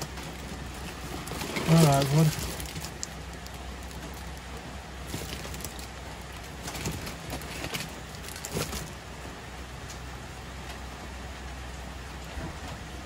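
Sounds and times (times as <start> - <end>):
paper rustling: 0.0 - 4.4, 5.0 - 9.0.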